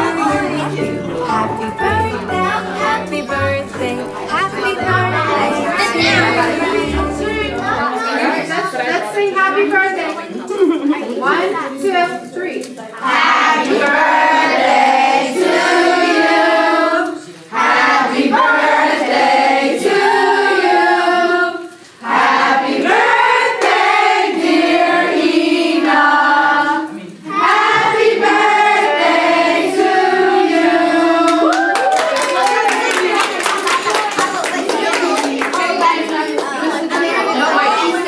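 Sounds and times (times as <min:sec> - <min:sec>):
group of people singing: 0:00.0 - 0:08.8, 0:13.0 - 0:31.6.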